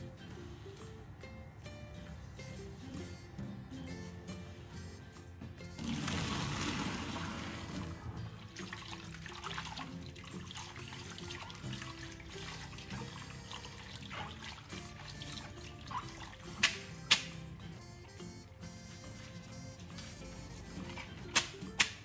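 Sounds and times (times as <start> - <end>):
tap water running: 5.7 - 17.5
hot water poured into colander: 5.8 - 16.5.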